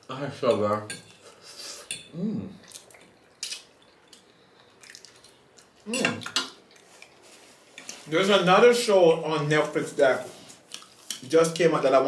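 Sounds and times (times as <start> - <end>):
wet eating and chewing: 2.5 - 8.1.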